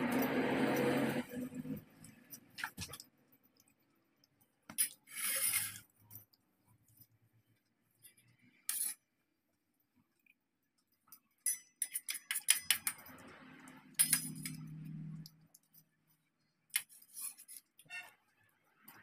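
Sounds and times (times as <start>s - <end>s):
spoon clinking on steel bowl: 11.4s - 13.2s.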